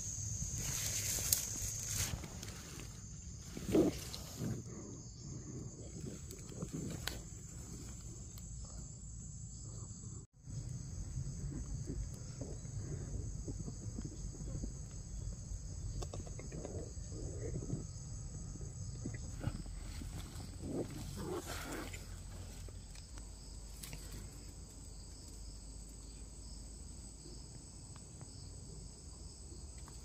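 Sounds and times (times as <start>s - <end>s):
high-pitched insect chorus: 0.0s - 30.0s
faint low rustles and scrapes: 0.4s - 4.8s, 18.8s - 23.1s.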